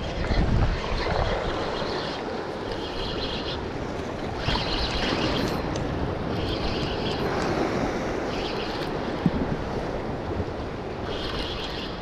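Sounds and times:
fishing reel whirring: 0.0 - 9.2, 10.9 - 12.0
wind: 0.0 - 12.0.

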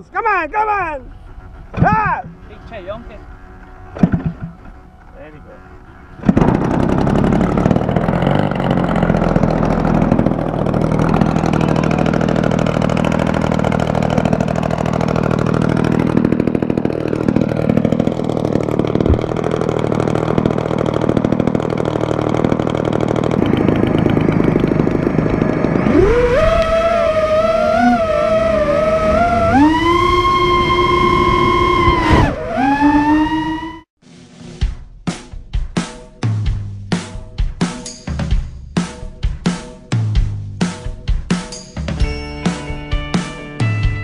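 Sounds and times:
model plane engine running: 4.6 - 32.0
rising wavering whine: 7.0 - 33.9.

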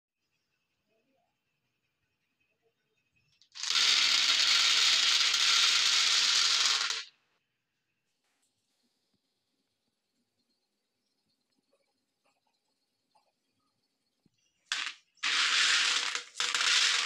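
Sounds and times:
hard candies clattering into plastic tray: 3.6 - 7.0, 14.7 - 17.0.

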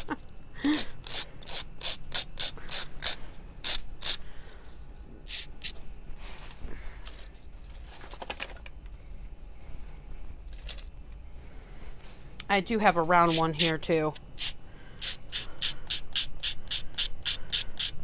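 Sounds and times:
nail file rasping on paper: 0.7 - 4.2, 13.2 - 18.0
faint handling noises: 4.5 - 12.6.

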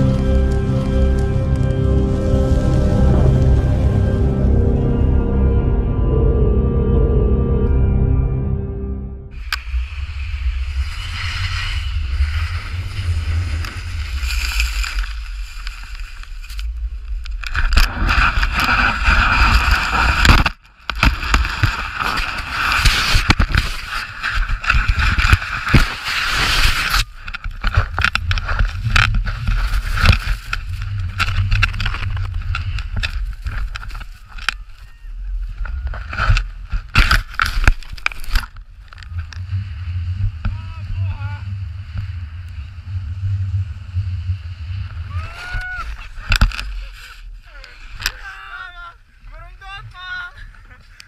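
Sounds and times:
snow rushing and scraping: 0.0 - 5.3, 9.3 - 51.0
low rumble: 0.0 - 51.0
wind buffeting microphone: 27.0 - 46.9.

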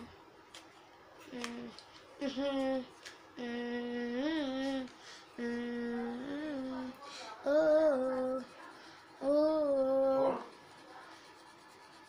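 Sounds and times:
boy humming: 1.3 - 8.5, 9.2 - 10.5.

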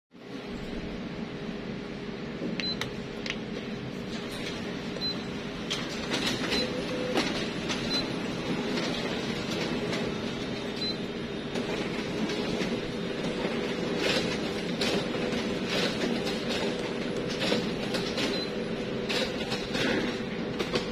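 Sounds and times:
steady machine hum: 0.2 - 20.9.

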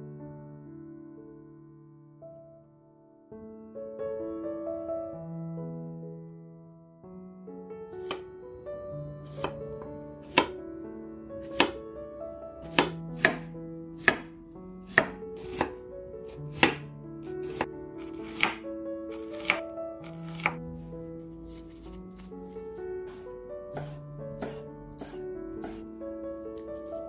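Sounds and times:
soft piano music: 0.0 - 27.0
knife knocking on cutting board: 9.4 - 9.6, 10.2 - 10.5, 11.5 - 11.8, 12.7 - 14.3, 14.9 - 15.7, 16.5 - 18.6, 23.1 - 25.8.

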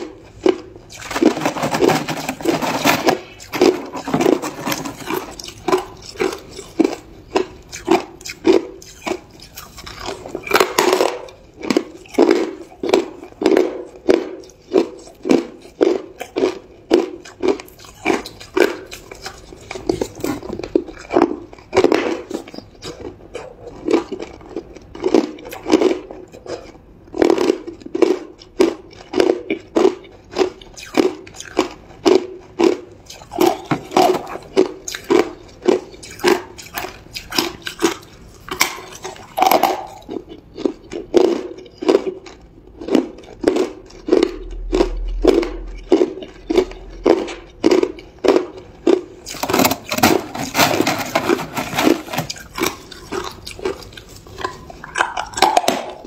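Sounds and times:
person chewing hard ice: 0.0 - 56.0.

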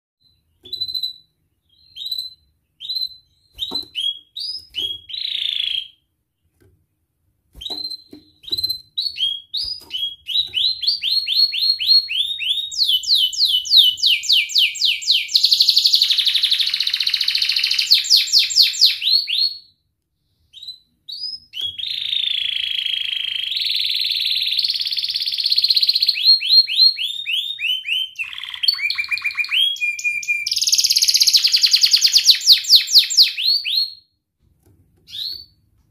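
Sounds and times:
canary singing trills: 7.6 - 19.5, 21.1 - 34.0.

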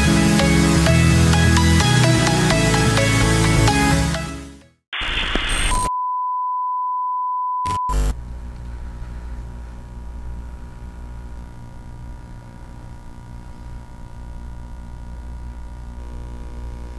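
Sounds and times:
static: 5.0 - 5.9, 7.7 - 16.9.

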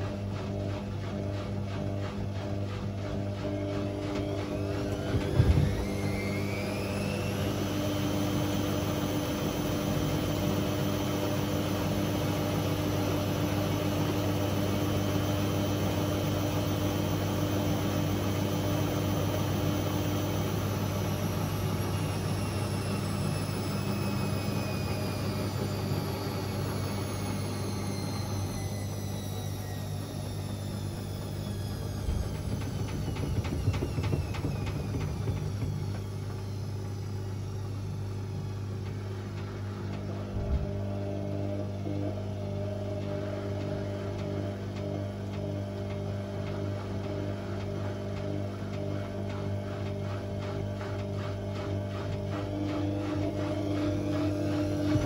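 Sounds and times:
low hum: 0.0 - 10.7, 21.0 - 43.7
laundry and water tumbling: 0.0 - 23.7, 31.3 - 37.4, 44.8 - 55.0
washing machine motor whine: 0.0 - 55.0.

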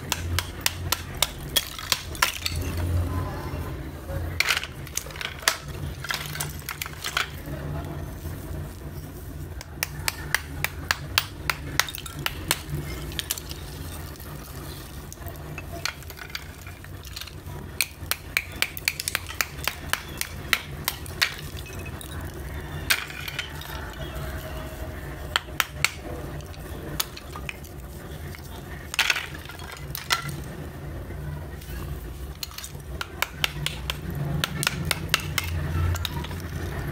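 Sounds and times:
hammer tapping brittle slabs: 0.0 - 2.4, 9.6 - 13.6, 15.6 - 21.9, 32.4 - 36.5.

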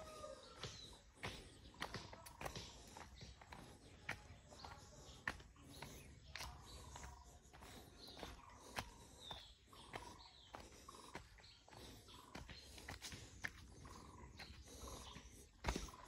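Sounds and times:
footsteps on dirt path: 0.0 - 16.0.

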